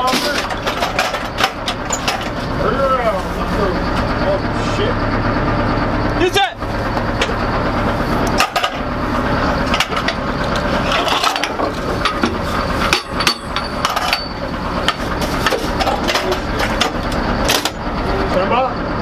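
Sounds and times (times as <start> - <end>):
metal clanks and knocks: 0.0 - 2.5, 8.3 - 17.9
low vehicle engine drone: 0.0 - 19.0.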